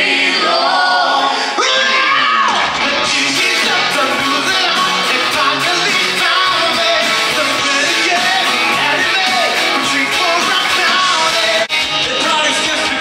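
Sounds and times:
live rock band playing: 2.5 - 13.0
person singing: 2.8 - 13.0.

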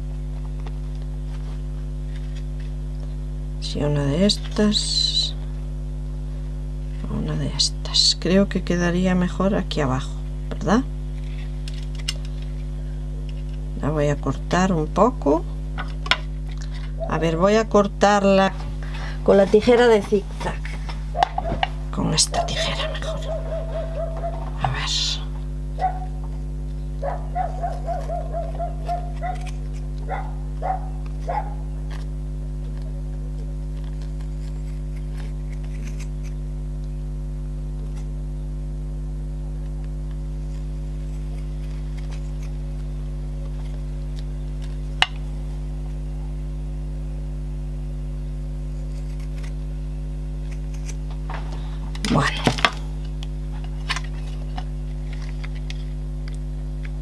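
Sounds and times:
electrical mains hum: 0.0 - 57.0
scissors cutting fabric: 27.6 - 29.8, 33.9 - 36.4, 40.4 - 42.6, 48.7 - 49.6, 50.4 - 51.2.

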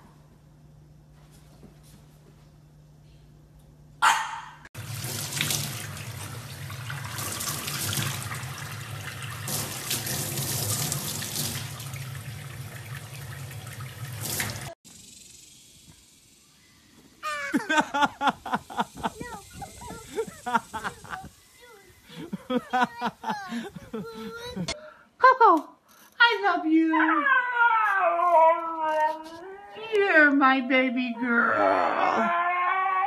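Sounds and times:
tap water running into sink: 4.8 - 14.8.

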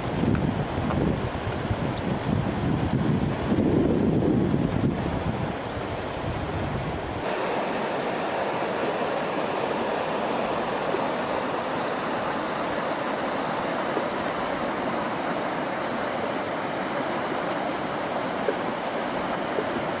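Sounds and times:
wind rumbling on microphone: 0.0 - 7.3
river water rushing: 0.0 - 20.0.

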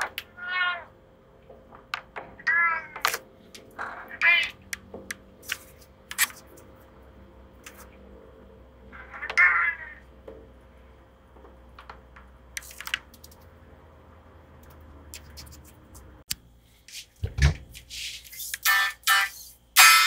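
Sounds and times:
cat meowing: 0.3 - 0.9, 2.4 - 3.0, 9.0 - 10.0.

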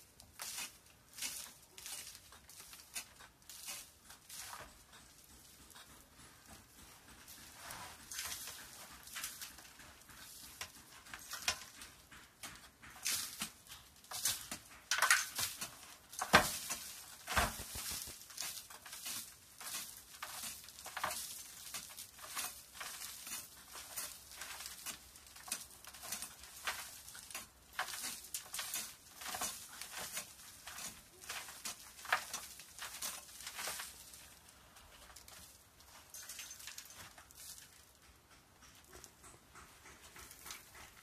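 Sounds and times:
grit pattering down: 0.1 - 41.0
pickaxe chipping at rock: 12.5 - 34.0.

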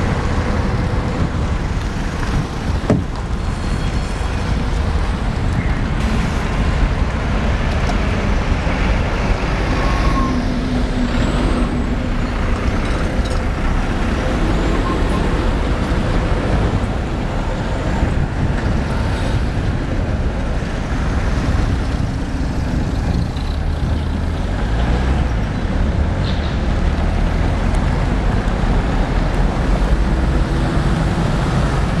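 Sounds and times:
bus passing: 0.0 - 32.0
cars passing: 0.0 - 32.0
heavy low traffic rumble: 0.0 - 32.0
tram passing: 0.0 - 32.0.

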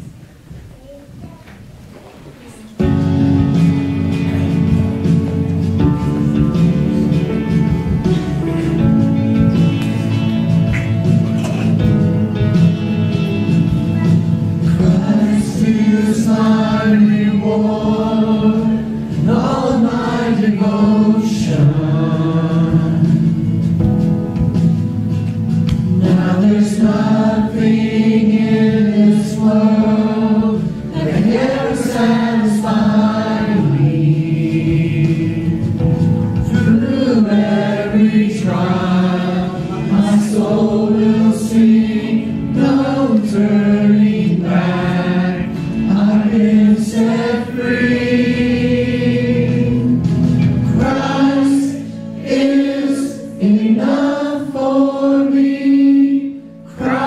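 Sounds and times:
group singing a church song: 2.8 - 57.0
instrumental accompaniment: 2.8 - 57.0.

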